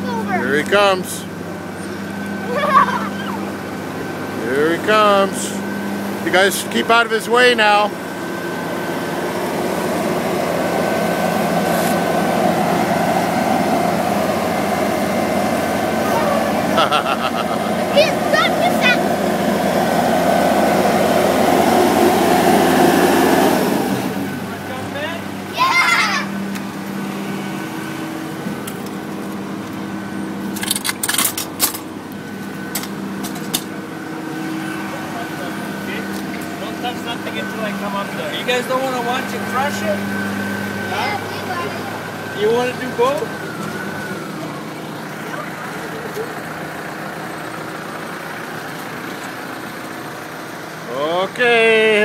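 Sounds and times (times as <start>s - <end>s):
diesel engine running: 0.0s - 52.0s
sharp clicks and rattles: 30.5s - 33.7s.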